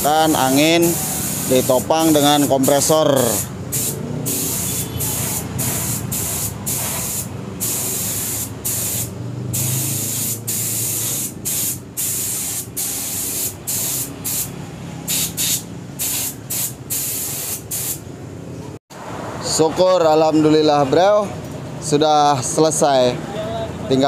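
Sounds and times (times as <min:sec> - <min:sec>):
spray gun hissing: 0:00.0 - 0:14.5, 0:15.1 - 0:18.0.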